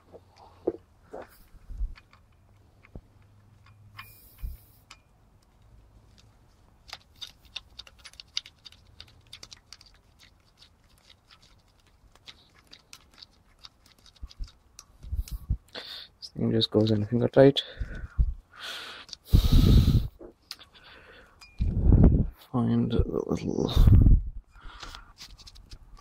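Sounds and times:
metallic clicks and scrapes of nut: 1.4s - 15.4s.

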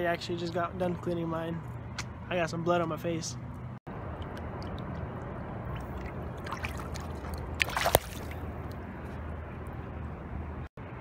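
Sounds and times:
river water trickling over rocks: 3.9s - 8.8s
water splash: 4.1s - 8.8s.

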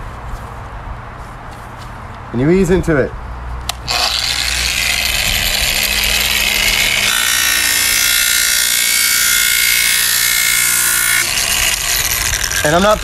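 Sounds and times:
angle grinder whining: 3.7s - 13.0s
polishing pad grinding tile edge: 3.9s - 13.0s.

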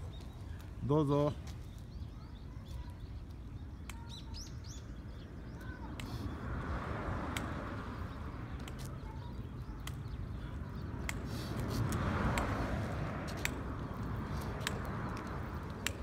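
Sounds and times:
cane taps and footsteps on asphalt: 0.0s - 16.0s
low outdoor rumble: 4.6s - 16.0s.

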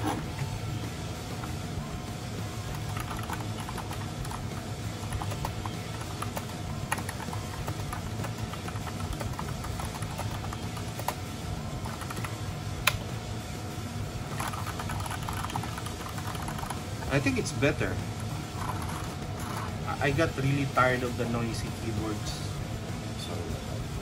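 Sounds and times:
mechanical keyboard typing: 2.7s - 4.4s, 5.0s - 11.2s, 11.8s - 12.4s, 14.3s - 16.8s.

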